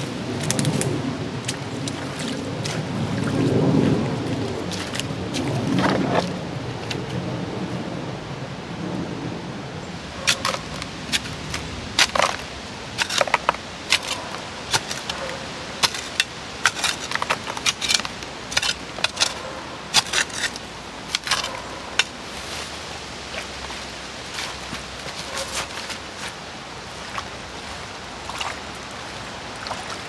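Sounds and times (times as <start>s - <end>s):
gravel scraping and clinking: 4.7s - 7.0s, 10.2s - 26.4s.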